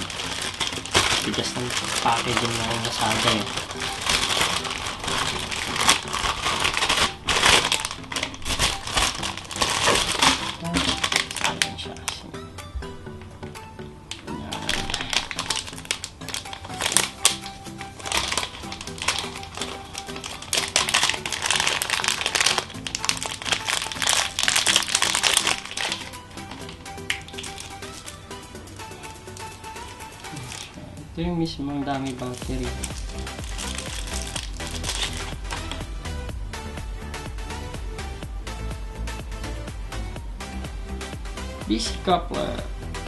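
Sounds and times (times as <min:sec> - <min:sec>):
plastic packaging crinkling: 0:00.0 - 0:12.2, 0:14.1 - 0:30.8, 0:31.8 - 0:35.9
background music: 0:00.0 - 0:43.0.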